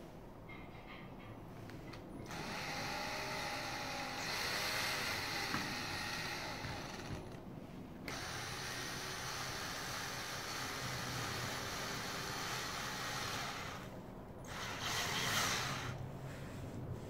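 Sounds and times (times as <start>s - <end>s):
drill driving screw into wood: 2.3s - 7.4s, 8.1s - 13.9s, 14.5s - 16.0s.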